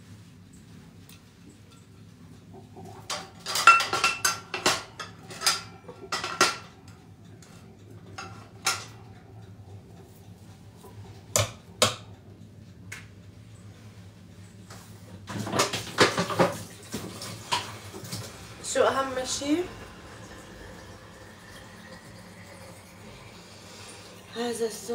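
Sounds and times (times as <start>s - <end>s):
dishes and cutlery clinking: 2.9s - 6.8s.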